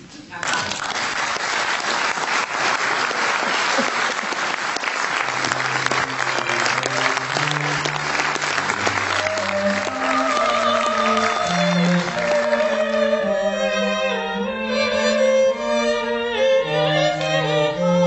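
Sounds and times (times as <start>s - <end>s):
audience applauding: 0.4s - 13.4s.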